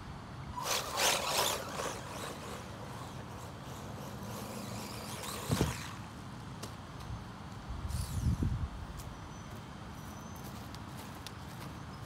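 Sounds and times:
toy car electric motor whining: 0.5 - 6.1, 7.9 - 8.5.

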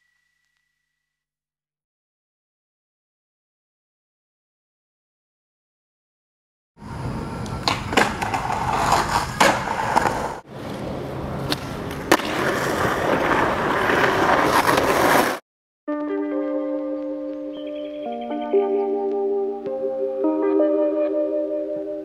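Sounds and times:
skateboard wheels rolling on concrete: 6.8 - 15.4
skateboard clacking on concrete: 7.4 - 15.4.

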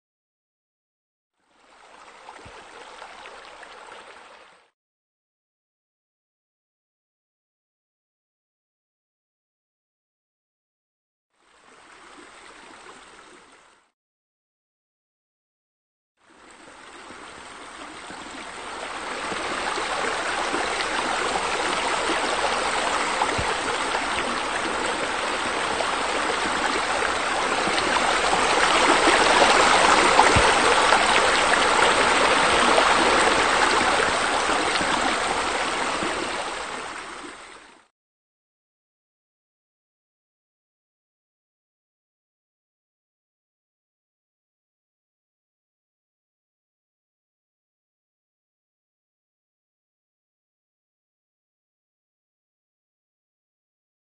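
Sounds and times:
running splashing water: 18.0 - 37.7.

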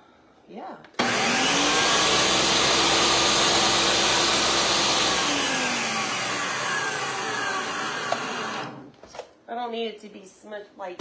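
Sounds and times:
food processor chopping: 1.0 - 8.9.

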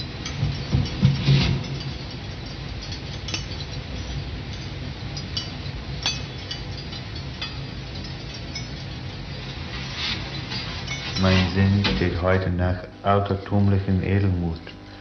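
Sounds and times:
small glassy clinks and ticks: 0.0 - 11.8.

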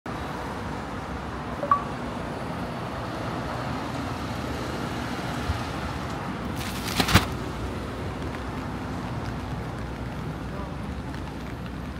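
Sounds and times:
road traffic: 0.1 - 11.9
short high beep: 1.6 - 1.9.

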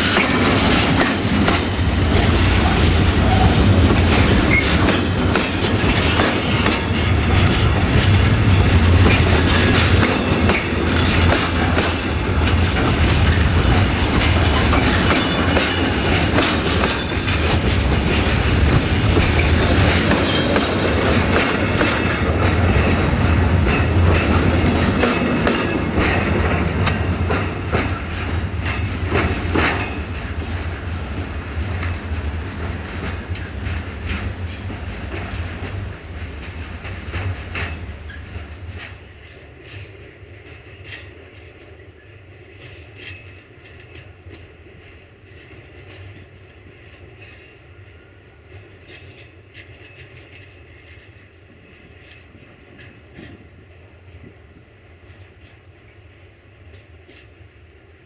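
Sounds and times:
freight wagons rumbling: 0.0 - 39.8
wheels clacking over rail joints: 0.0 - 41.7.

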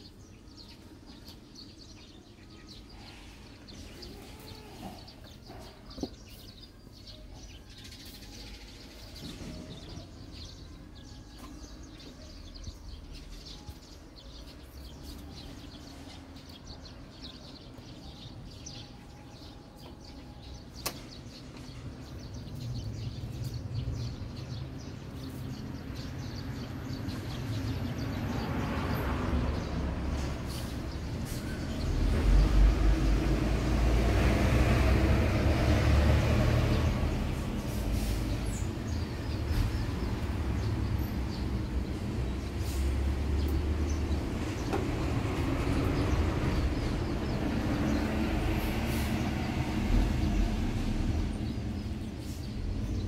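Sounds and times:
heavy vehicle rumbling past: 14.2 - 53.0.

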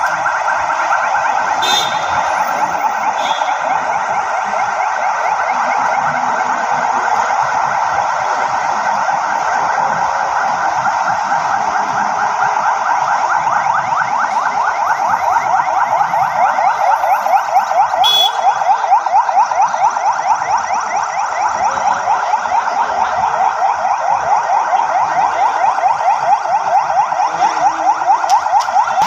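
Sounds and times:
police sirens yelping: 0.0 - 29.0.

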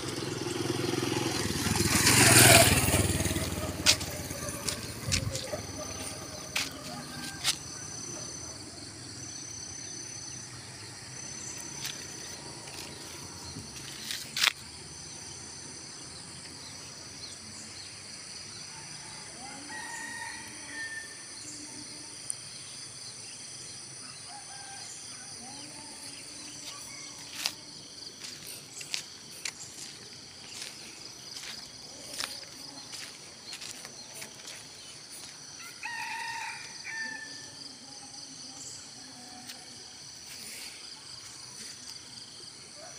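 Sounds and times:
insects buzzing: 0.0 - 42.7
rooster crowing: 2.7 - 8.4, 18.7 - 21.2, 35.2 - 37.7.

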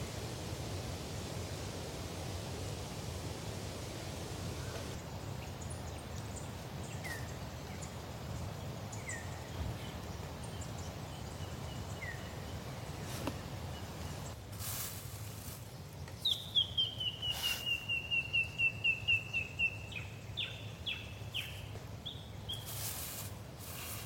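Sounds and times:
outdoor background noise: 0.0 - 24.0
bird chirping: 4.6 - 8.2, 16.0 - 22.9.

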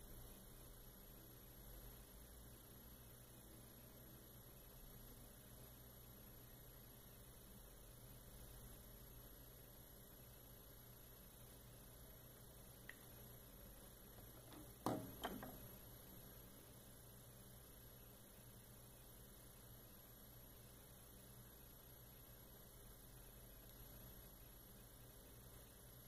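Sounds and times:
faint high-pitched whine: 0.0 - 26.0
low electrical hum: 0.0 - 26.0
faint tick: 23.6 - 23.8.

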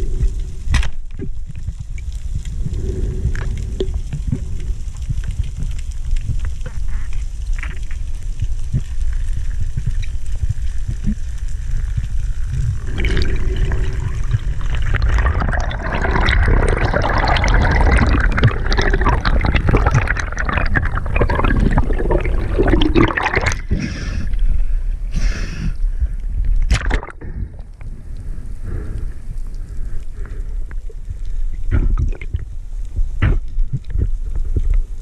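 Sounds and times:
low rumble: 0.0 - 35.0
water sloshing and bubbling: 0.0 - 35.0
water splashing: 12.2 - 24.3, 26.7 - 27.8.

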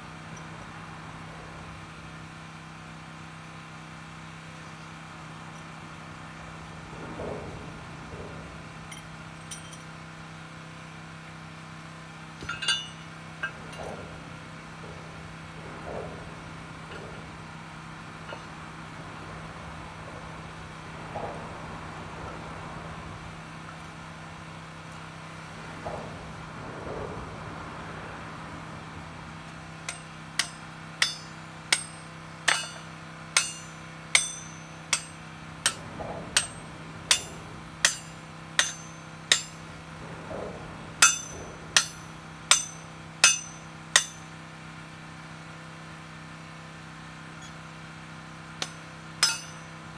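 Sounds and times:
sledgehammer striking steel: 29.8 - 44.4, 48.6 - 49.8.

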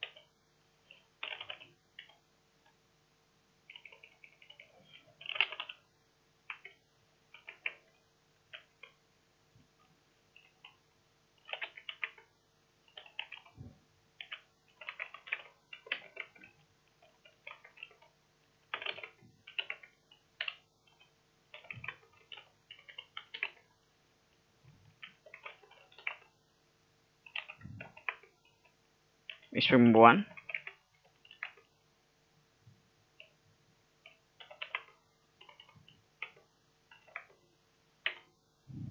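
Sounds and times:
computer keyboard typing: 0.0 - 2.8, 3.7 - 9.0, 9.8 - 10.8, 11.4 - 23.8, 24.8 - 26.4, 27.2 - 31.8, 33.2 - 33.4, 34.0 - 37.4, 38.0 - 38.3.

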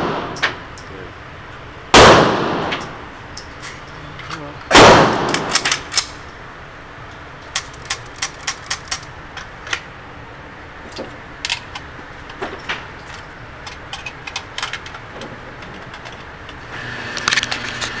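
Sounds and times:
sharp gunshot cracks: 1.9 - 2.8, 4.7 - 5.6.

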